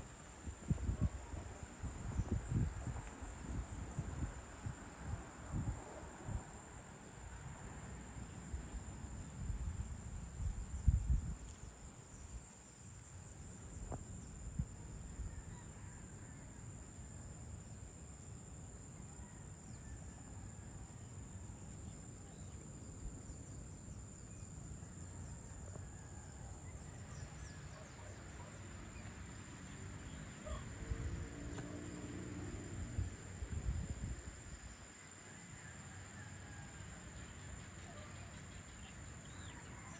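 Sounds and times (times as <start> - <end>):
wind rumbling on microphone: 0.0 - 6.9, 8.4 - 12.6, 30.4 - 31.8, 32.5 - 34.8
insects trilling: 0.0 - 39.9.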